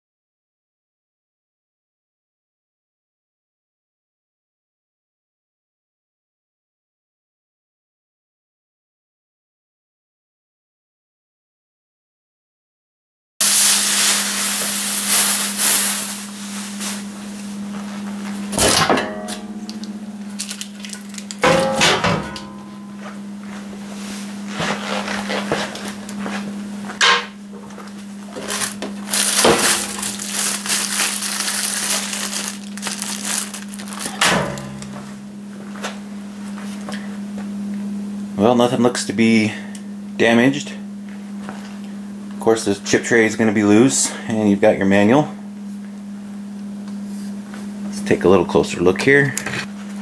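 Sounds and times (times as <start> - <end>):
plastic sheeting crinkling: 13.4 - 17.2, 20.3 - 21.4, 28.3 - 34.2
steady low hum: 13.4 - 50.0.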